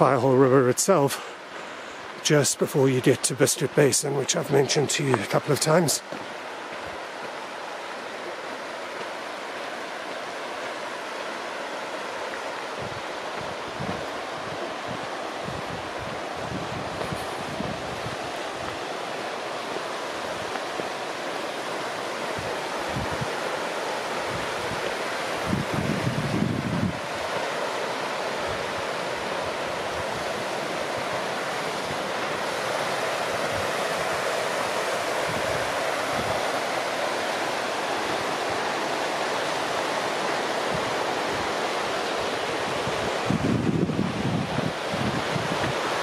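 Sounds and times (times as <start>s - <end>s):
river rushing: 0.0s - 46.0s
wind buffeting microphone: 12.6s - 19.0s, 22.2s - 27.4s, 28.0s - 36.6s, 40.0s - 46.0s.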